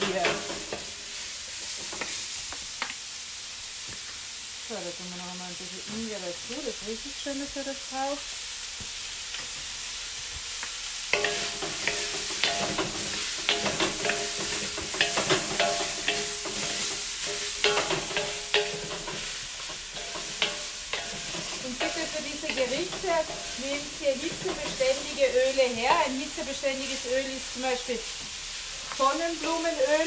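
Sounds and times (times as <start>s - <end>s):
food sizzling in a wok: 0.0s - 30.0s
spatulas scraping a wok: 11.1s - 30.0s.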